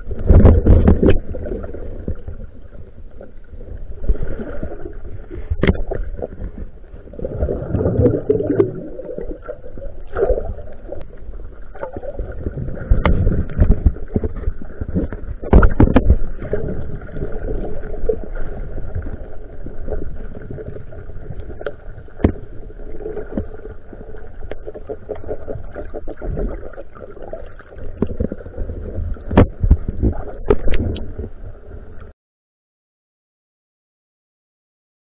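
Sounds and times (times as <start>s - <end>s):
underwater rumble of moving water: 0.0s - 32.1s.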